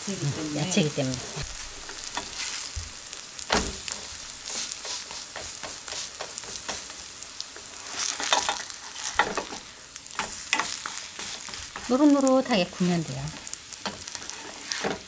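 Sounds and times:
pancakes sizzling in oil: 0.0s - 15.0s
wooden spatula scraping pan: 13.8s - 15.0s.

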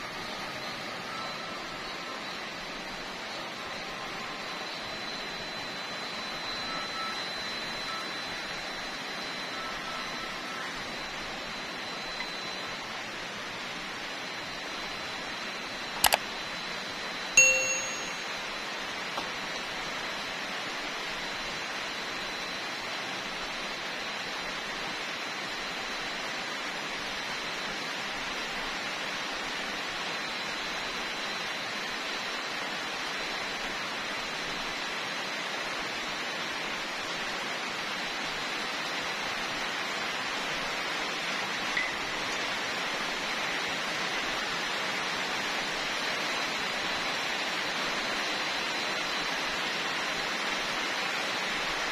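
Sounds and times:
click: 16.0s - 16.2s
bell-like ding: 17.4s - 18.6s.

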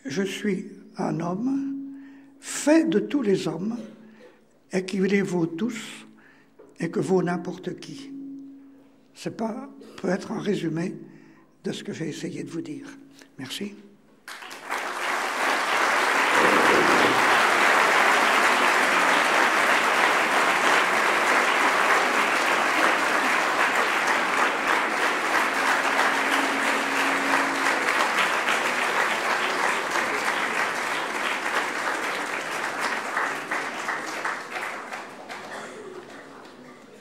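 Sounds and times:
audience applauding: 14.3s - 37.0s.

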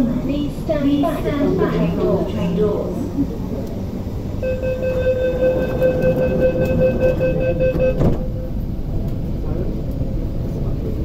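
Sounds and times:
low train hum: 0.0s - 11.0s
pulsing electronic warning tone: 4.4s - 8.5s
train doors shutting thud: 4.9s - 9.6s.

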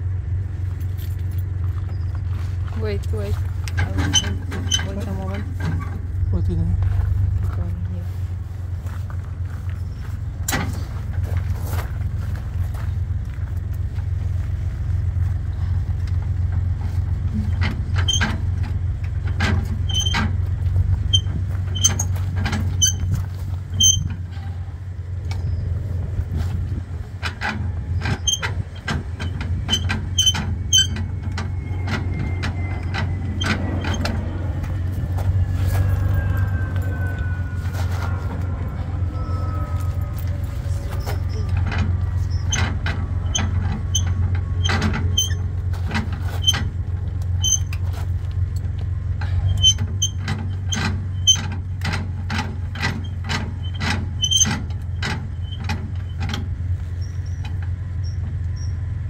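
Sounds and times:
steady low hum: 0.0s - 59.0s
metal hitch clicking and clanking: 2.9s - 6.5s, 10.3s - 13.9s, 15.9s - 25.8s, 26.4s - 58.9s
faint falling whine: 27.3s - 45.6s.

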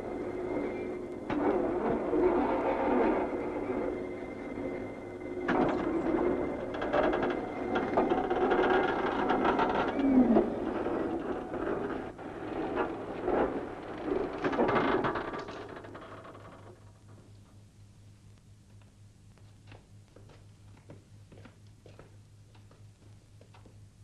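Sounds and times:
crane machinery clattering and whirring: 0.0s - 17.5s.

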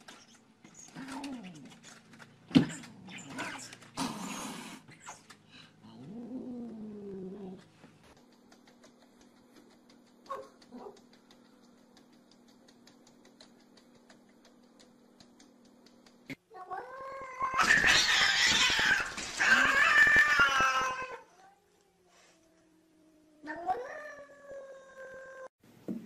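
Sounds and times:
cats yowling: 16.5s - 21.3s.

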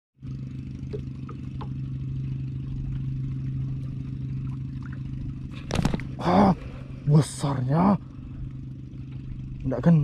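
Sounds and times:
small engine humming: 0.2s - 10.0s.

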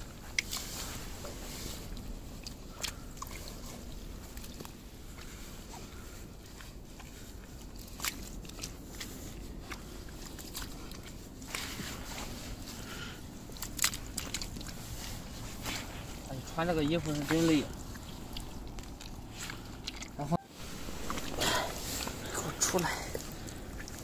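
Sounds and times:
low steady rumble: 0.0s - 24.0s.

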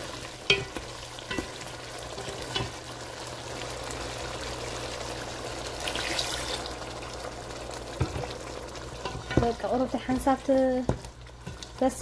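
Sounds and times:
sauce sizzling in a pot: 0.0s - 12.0s
spoon knocking pot: 0.4s - 1.6s, 9.0s - 11.7s
liquid splashing into pot: 5.7s - 6.9s.

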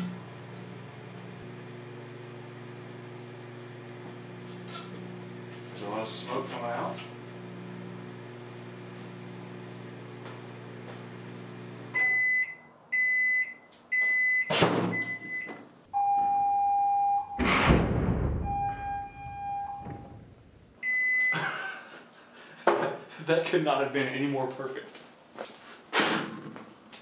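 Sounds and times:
microwave oven humming: 0.0s - 13.3s
microwave beeps: 11.9s - 17.5s, 18.4s - 20.2s, 20.8s - 21.5s
sharp crack: 17.4s - 18.4s
loud blast: 17.4s - 19.5s
held electronic tone: 18.4s - 20.1s.

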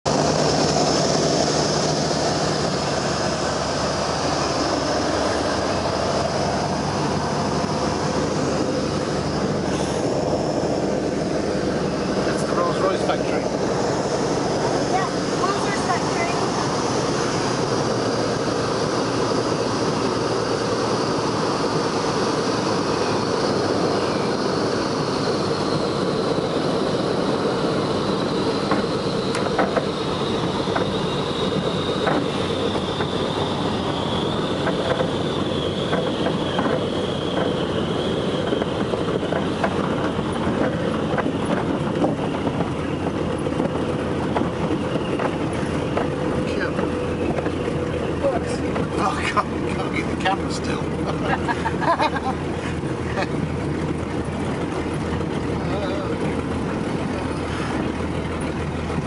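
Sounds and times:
aircraft engines and propellers din: 0.0s - 59.0s
knocks and rattles on bumpy ground: 38.4s - 59.0s.

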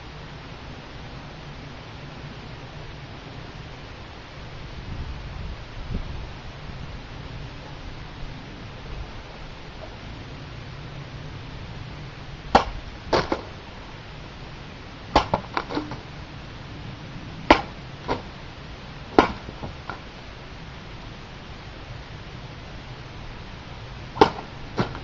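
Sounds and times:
severed pieces dropping knocks: 15.2s - 16.0s.

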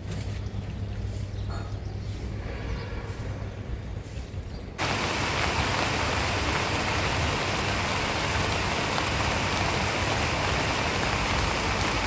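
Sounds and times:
rain falling on plants: 4.8s - 12.0s.

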